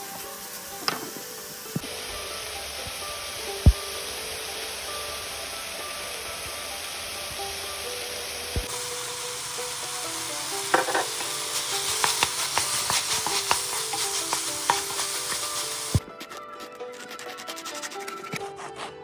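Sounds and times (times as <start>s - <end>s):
meat sizzling in frying pan: 0.0s - 16.0s
wooden spatula scraping pan: 10.7s - 19.0s.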